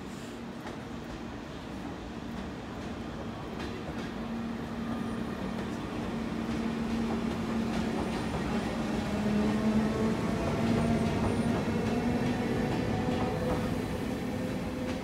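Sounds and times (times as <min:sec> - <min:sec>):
electric train hum: 0:00.6 - 0:15.0
wheels rumbling on rail: 0:05.4 - 0:15.0.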